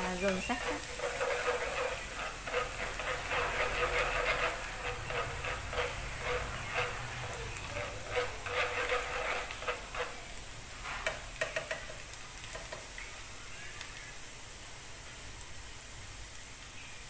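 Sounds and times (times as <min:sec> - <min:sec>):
chopsticks stirring: 0:00.0 - 0:12.9
garlic sizzling in hot oil: 0:00.0 - 0:17.0.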